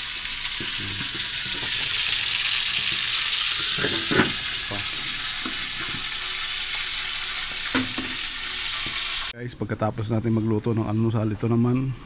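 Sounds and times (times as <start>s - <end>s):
hot oil sizzling in frying pans: 0.0s - 9.4s.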